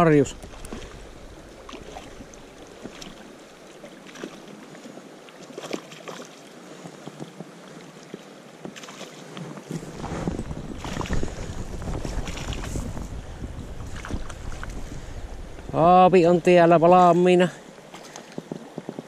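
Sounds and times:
wind rumbling on microphone: 0.0s - 3.8s, 8.6s - 17.5s.

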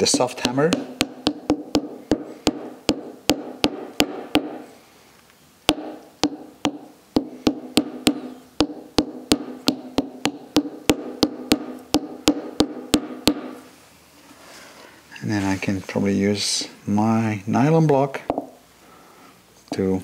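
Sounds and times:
plastic mallet tapping metal: 0.0s - 4.6s, 5.7s - 13.6s.

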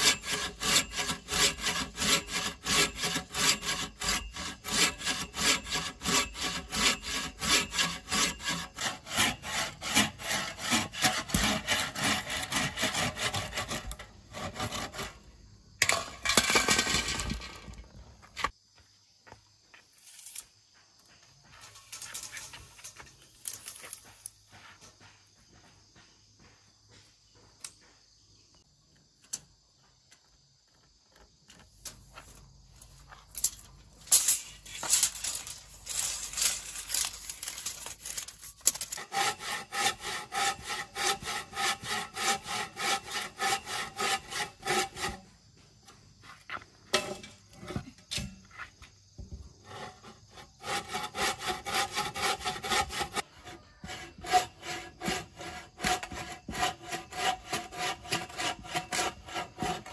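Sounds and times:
bow saw cutting log: 0.0s - 16.1s, 34.5s - 45.4s, 49.6s - 59.9s.

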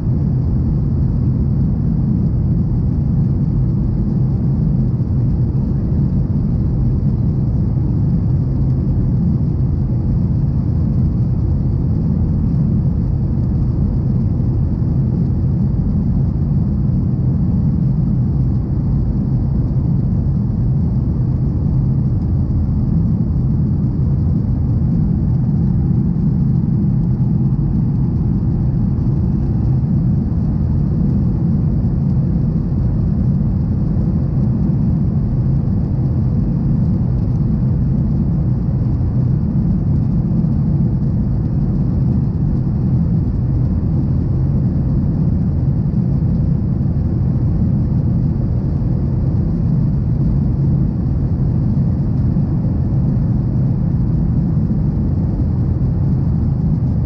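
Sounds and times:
airplane cabin engine rumble: 0.0s - 57.0s.

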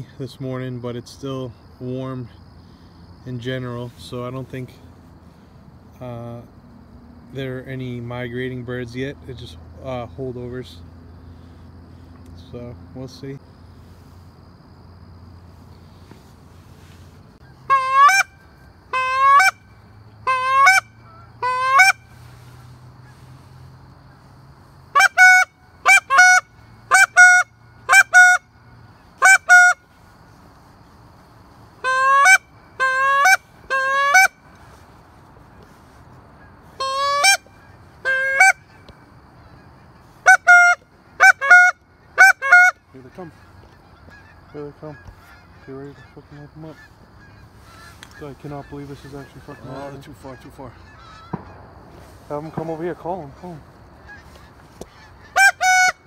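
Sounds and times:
goose call honks: 16.1s - 23.5s, 24.9s - 29.9s, 31.8s - 34.8s, 35.6s - 56.0s.

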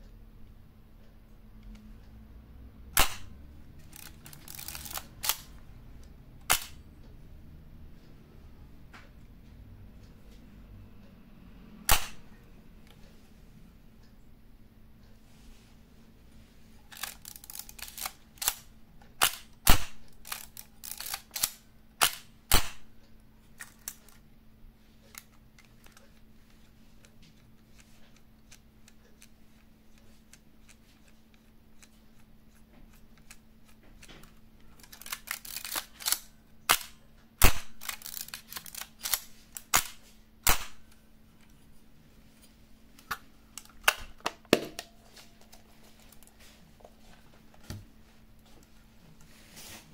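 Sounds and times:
camera mechanism clicking: 3.0s - 5.5s, 16.9s - 22.7s, 34.8s - 40.8s.

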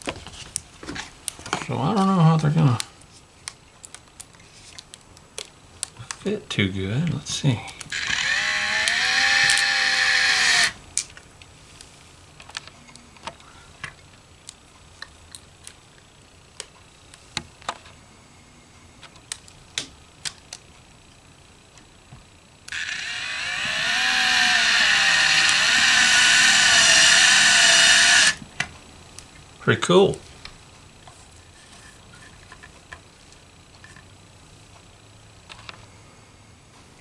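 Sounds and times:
cordless drill motor whining: 7.9s - 10.8s, 22.7s - 28.4s.

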